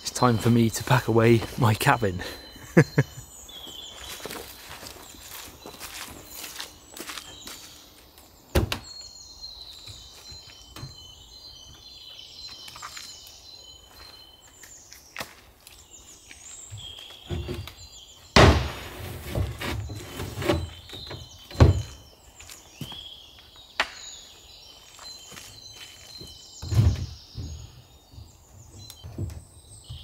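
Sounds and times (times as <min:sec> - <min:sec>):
birds chirping: 0:00.0 - 0:30.0
wooden panels knocking and thumping: 0:17.3 - 0:17.7, 0:18.4 - 0:22.0, 0:26.6 - 0:28.3.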